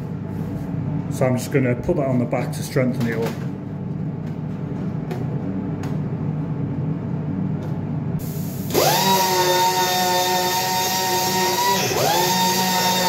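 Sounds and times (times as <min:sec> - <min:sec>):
low fan hum: 0:00.0 - 0:13.0
handheld power tool whine: 0:08.2 - 0:13.0.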